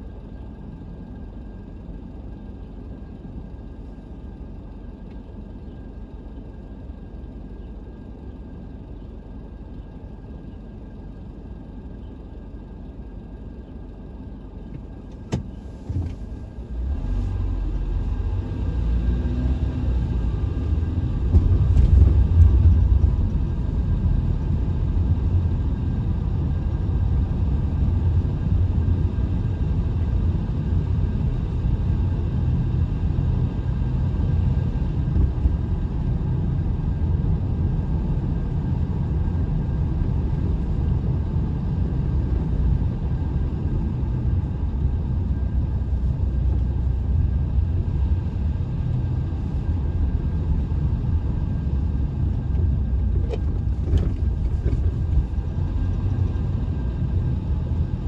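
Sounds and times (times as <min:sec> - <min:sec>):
vehicle driving rumble: 0:00.0 - 0:58.0.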